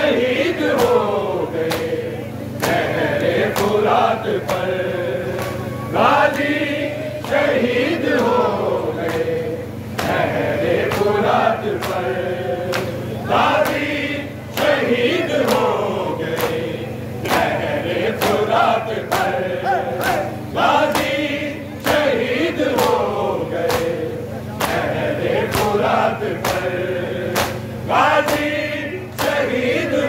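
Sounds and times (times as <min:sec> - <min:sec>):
men chanting a lament: 0:00.0 - 0:30.0
hands slapping on chests: 0:26.4 - 0:26.7, 0:27.3 - 0:27.6, 0:29.1 - 0:29.4.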